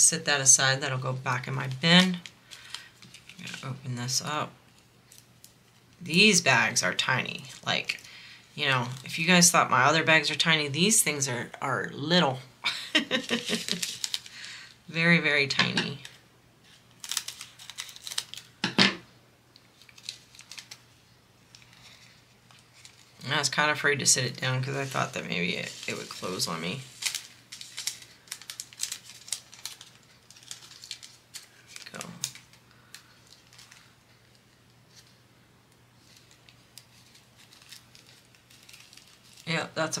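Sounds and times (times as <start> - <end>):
plastic bag crinkling: 1.3 - 6.2, 12.7 - 14.8, 15.8 - 18.6, 19.5 - 35.2, 36.0 - 40.0.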